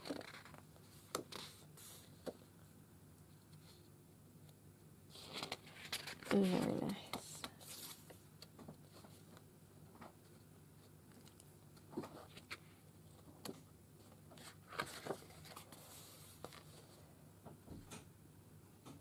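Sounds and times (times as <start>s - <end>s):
paper sheets rustling: 0.0s - 2.4s, 5.1s - 8.2s, 11.2s - 17.0s.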